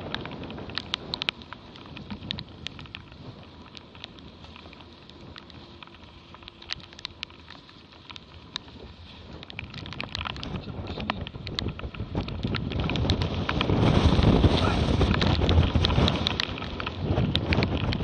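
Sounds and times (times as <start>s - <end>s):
water and wind rushing: 0.0s - 18.0s.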